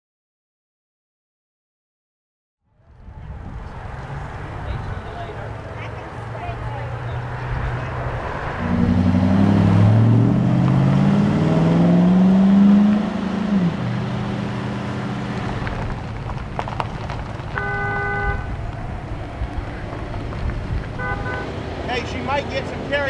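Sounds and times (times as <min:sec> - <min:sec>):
car engine revving: 0:03.4 - 0:23.0
short car horn toot: 0:17.6 - 0:18.5, 0:21.0 - 0:21.5.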